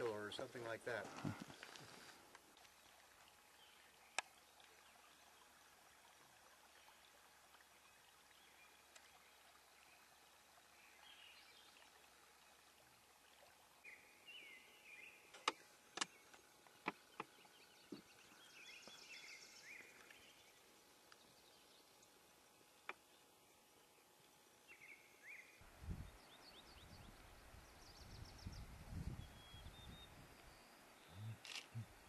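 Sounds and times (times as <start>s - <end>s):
bird chirps: 26.2s - 32.0s.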